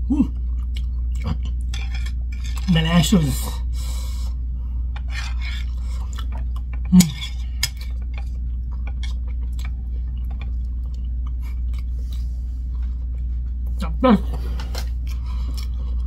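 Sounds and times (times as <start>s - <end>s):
low hum: 0.0s - 16.0s
chewing: 0.3s - 2.7s, 5.0s - 13.8s, 14.4s - 16.0s.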